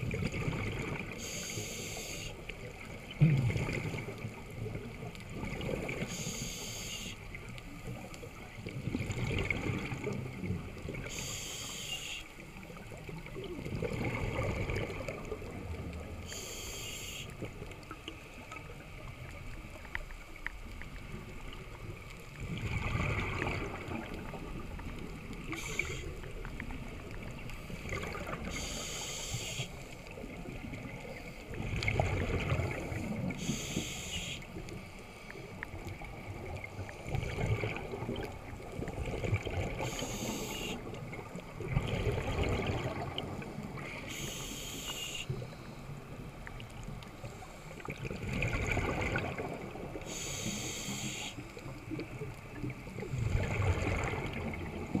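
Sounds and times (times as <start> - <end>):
exhaled air bubbling: 0.0 - 6.6, 7.3 - 11.8, 12.6 - 55.0
regulator hissing inhales: 1.2 - 2.4, 6.1 - 7.2, 11.1 - 12.3, 16.3 - 17.4, 25.5 - 26.1, 28.5 - 29.8, 33.4 - 34.5, 39.8 - 40.8, 44.0 - 45.7, 50.0 - 51.4.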